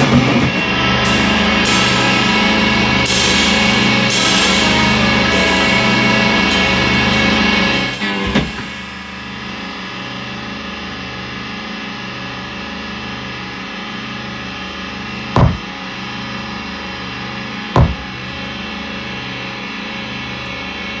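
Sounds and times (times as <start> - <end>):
drone of held tones: 0.0 - 21.0
sharp drum strikes: 15.4 - 15.7, 17.8 - 18.2.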